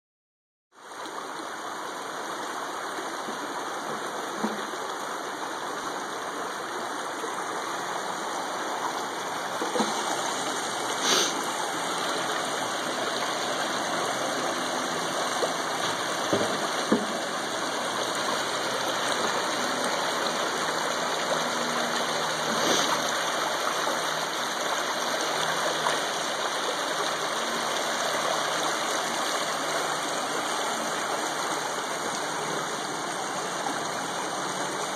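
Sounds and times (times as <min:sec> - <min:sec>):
creek water over rocks: 0:00.8 - 0:34.9.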